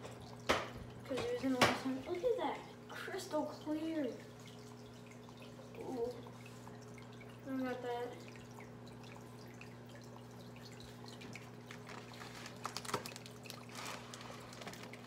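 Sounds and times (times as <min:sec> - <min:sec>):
aquarium filter humming: 0:00.0 - 0:15.0
water trickling and dripping: 0:00.0 - 0:15.0
plastic bag crinkling: 0:11.6 - 0:15.0.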